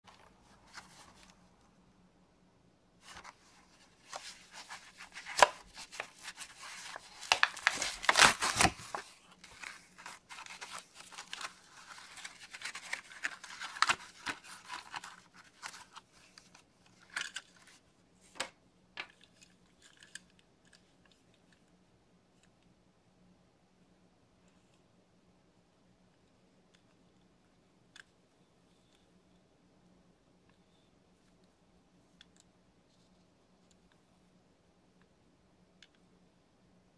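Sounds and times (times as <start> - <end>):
plastic blister pack crackling: 4.0 - 16.0
cardboard tearing: 4.4 - 14.8.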